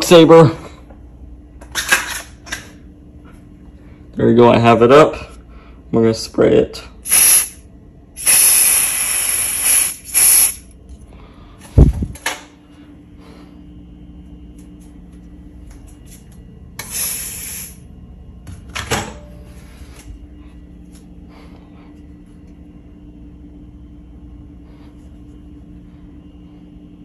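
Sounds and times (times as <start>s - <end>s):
steady low hum: 0.0s - 27.0s
aerosol spray hiss: 7.1s - 7.6s, 8.2s - 10.6s, 16.9s - 17.8s.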